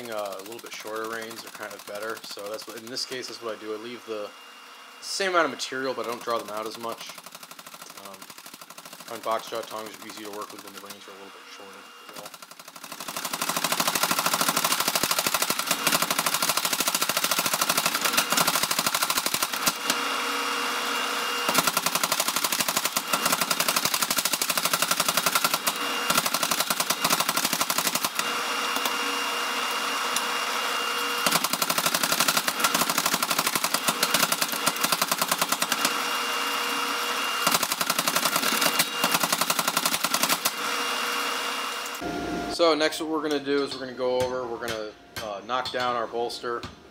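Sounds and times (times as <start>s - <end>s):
power hammer pounding steel: 11.9s - 41.2s.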